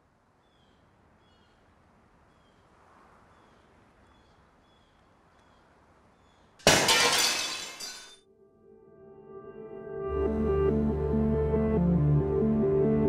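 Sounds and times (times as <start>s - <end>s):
soft steady hiss: 0.0s - 6.6s
small birds chirping: 0.3s - 6.6s.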